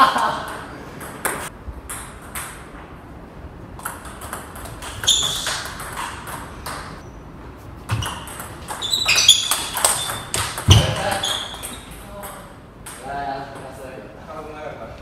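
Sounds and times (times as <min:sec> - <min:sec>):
table tennis ball clicking: 0:08.0 - 0:13.0.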